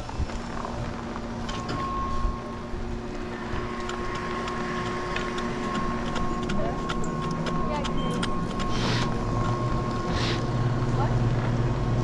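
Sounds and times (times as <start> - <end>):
chairlift mechanical hum: 0.0 - 12.0.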